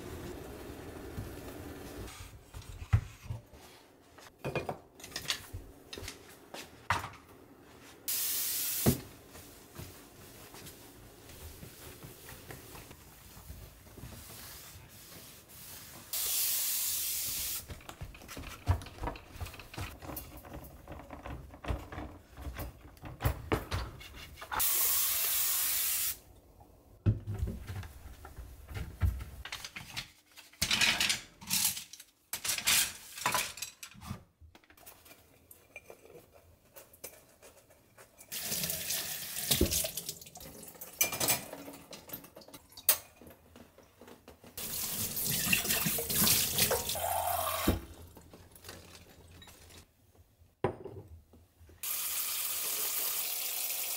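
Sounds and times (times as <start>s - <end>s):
spray hiss: 8.1s - 9.0s, 16.1s - 17.7s, 24.6s - 26.2s
cloth rubbing and wiping surfaces: 9.1s - 16.3s.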